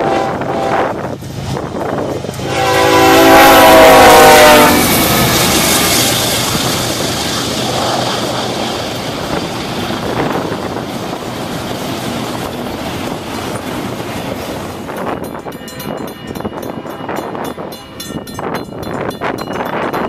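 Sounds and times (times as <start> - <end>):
freight train rumbling past: 0.0 - 20.0
train wheels clicking on rails: 0.4 - 3.1, 3.8 - 20.0.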